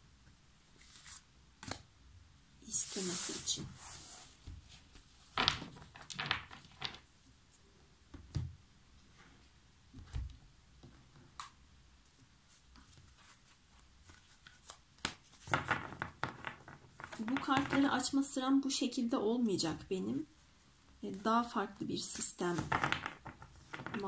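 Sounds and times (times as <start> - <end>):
cards handled on a table: 9.9 - 17.9, 22.5 - 24.0.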